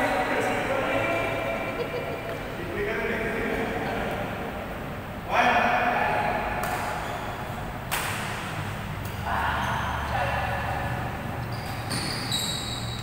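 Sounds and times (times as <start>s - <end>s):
rackets hitting shuttlecock: 6.5s - 9.2s
shoes squeaking on court: 6.6s - 10.2s, 11.3s - 13.0s.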